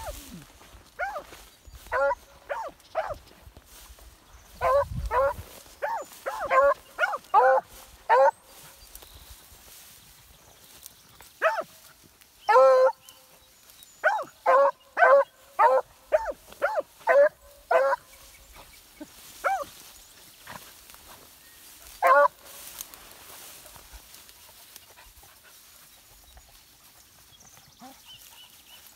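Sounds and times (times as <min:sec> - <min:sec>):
dogs barking: 0:00.9 - 0:03.3, 0:04.6 - 0:08.6, 0:11.4 - 0:11.8, 0:12.5 - 0:13.0, 0:14.0 - 0:18.6, 0:19.4 - 0:19.8, 0:21.9 - 0:22.5.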